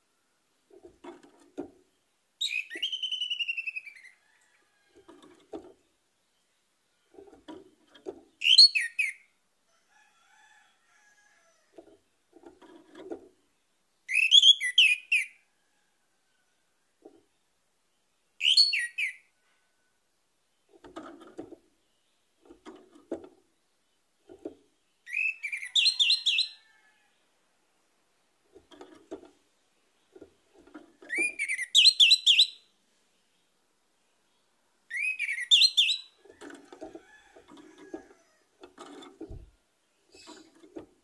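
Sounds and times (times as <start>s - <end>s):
softer lower bird sounds: 1.8s - 9.4s, 10.9s - 27.3s, 28.2s - 40.9s
thrush singing whistled notes: 2.4s - 4.2s, 8.4s - 9.3s, 14.1s - 15.4s, 18.4s - 19.2s, 25.1s - 26.6s, 31.1s - 32.7s, 34.9s - 36.2s.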